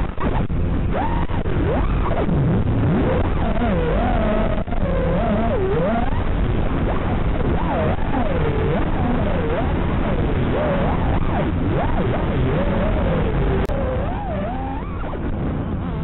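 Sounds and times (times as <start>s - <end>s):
drone motors whining: 0.0s - 16.0s.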